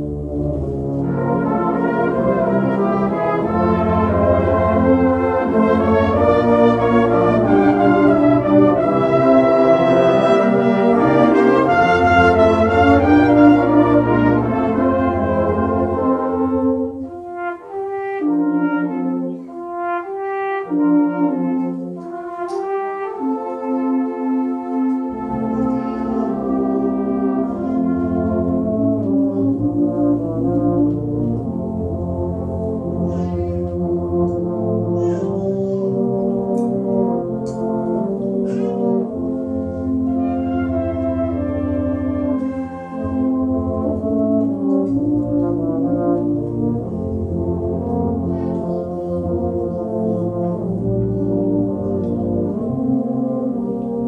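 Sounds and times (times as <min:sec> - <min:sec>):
brass band playing a hymn: 0:00.0 - 0:54.0.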